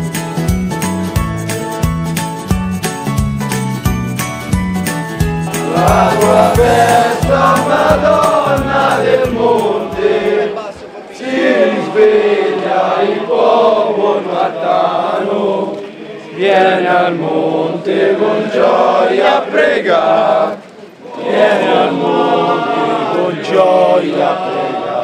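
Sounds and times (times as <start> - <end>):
men singing a devotional chant: 5.5 - 20.5, 21.2 - 25.0.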